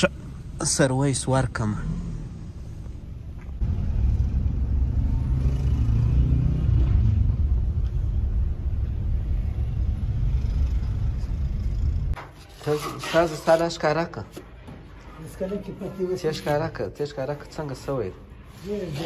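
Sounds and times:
car engine and road noise: 0.0 - 12.2.

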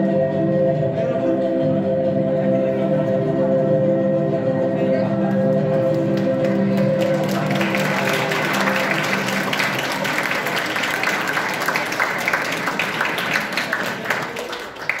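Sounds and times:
dance music: 0.0 - 11.5
audience clapping: 5.3 - 15.0.

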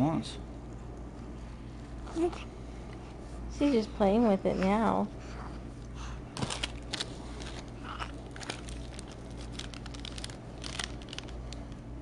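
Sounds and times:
low steady hum: 0.0 - 12.0
food wrapper crinkling: 6.4 - 11.8.

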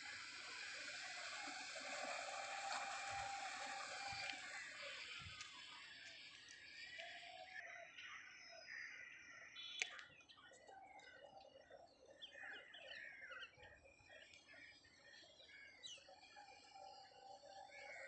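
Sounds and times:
faint birds chirping: 0.0 - 18.0.

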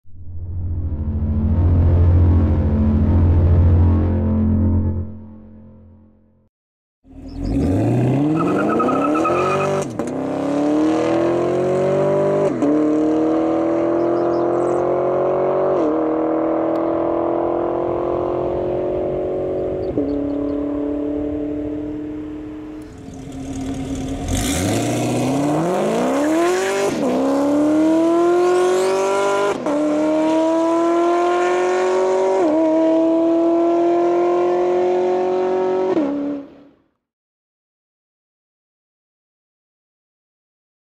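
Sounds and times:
car engine accelerating hard: 7.1 - 36.6.

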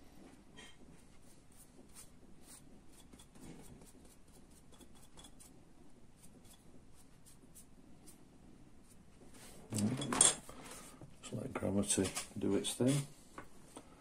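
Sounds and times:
paintbrush scratching on paper: 1.0 - 9.6.

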